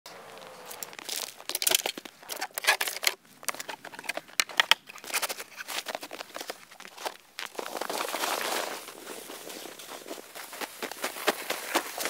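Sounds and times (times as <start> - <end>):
snow crunching: 5.3 - 12.0.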